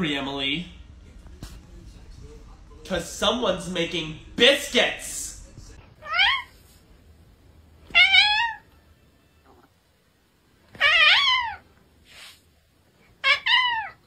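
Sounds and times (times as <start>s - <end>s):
cat meowing: 6.0s - 6.6s, 7.9s - 8.8s, 10.7s - 11.7s, 13.2s - 14.0s.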